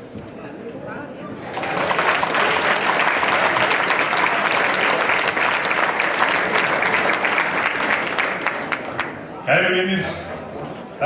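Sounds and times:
large audience applauding: 1.4s - 9.4s.

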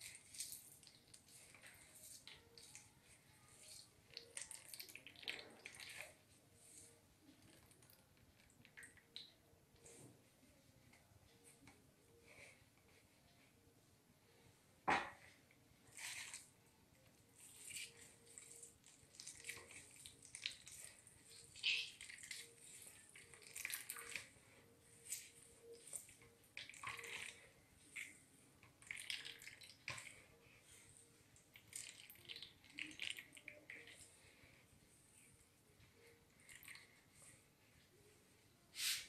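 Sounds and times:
liquid dripping into basin: 31.4s - 34.1s.

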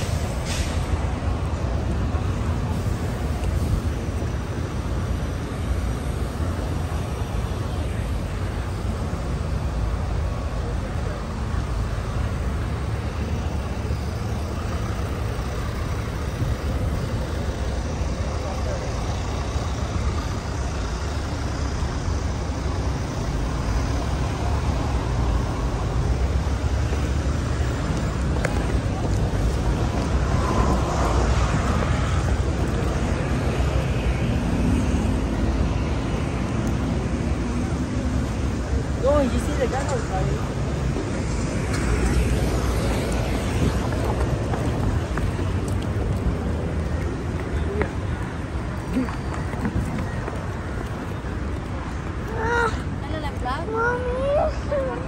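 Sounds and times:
faint voices: 0.0s - 34.6s, 35.2s - 55.0s
low rumble of motor vehicles: 0.0s - 55.0s.

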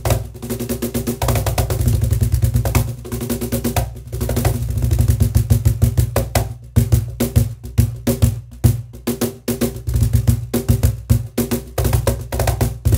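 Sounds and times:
cajon played by hand: 0.0s - 12.9s.

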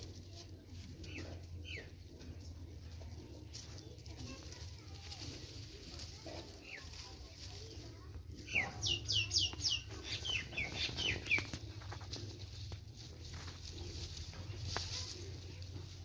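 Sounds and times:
bird chirping: 8.4s - 11.7s.

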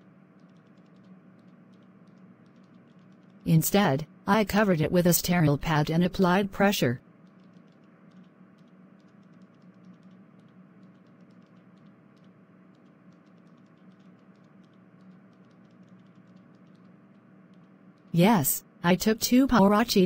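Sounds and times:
low steady hum: 0.0s - 20.0s
small irregular clicks: 0.3s - 3.5s, 7.1s - 18.2s.

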